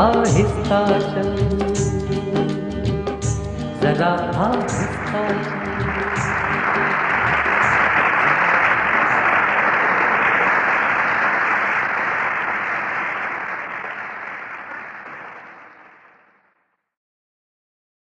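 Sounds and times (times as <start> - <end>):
audience applause: 4.6 - 16.6.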